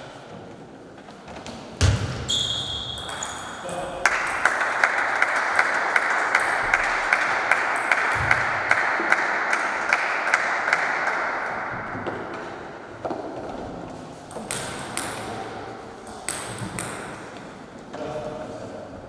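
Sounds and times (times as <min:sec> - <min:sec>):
applause: 0:04.0 - 0:11.3.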